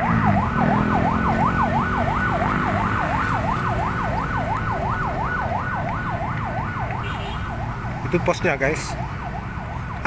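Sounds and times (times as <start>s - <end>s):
level crossing warning alarm: 0.0s - 7.8s.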